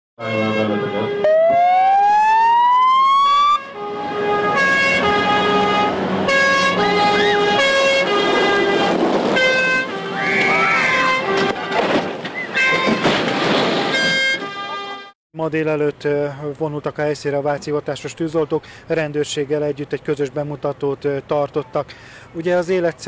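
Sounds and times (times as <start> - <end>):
fire engine electronic siren: 0.3 - 11.8.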